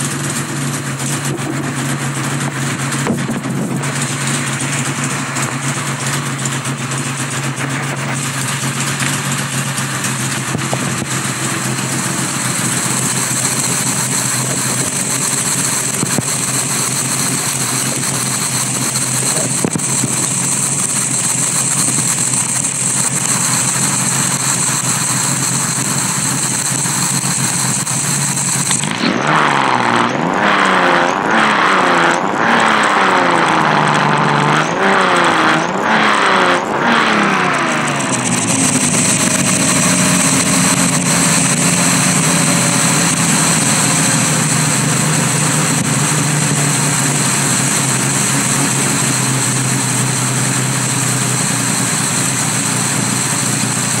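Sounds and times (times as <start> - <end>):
six-cylinder engine idling and revving: 0.0 - 54.0.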